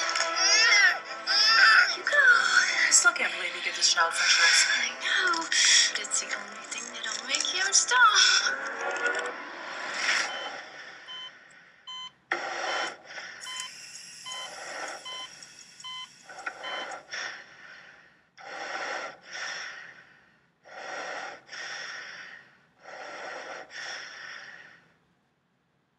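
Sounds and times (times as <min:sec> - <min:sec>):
heavy labored breathing: 0:03.7 - 0:06.1, 0:16.3 - 0:25.0
heart monitor beeping: 0:10.2 - 0:17.1.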